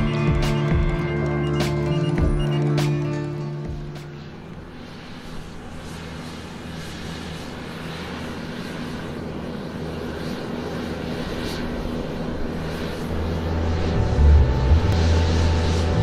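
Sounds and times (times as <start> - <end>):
aircraft engine drone: 0.0 - 16.0
rushing noise: 13.1 - 16.0.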